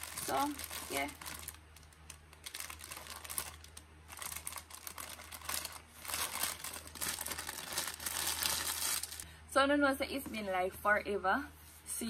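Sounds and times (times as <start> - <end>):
plastic packaging crinkling: 0.0 - 9.3.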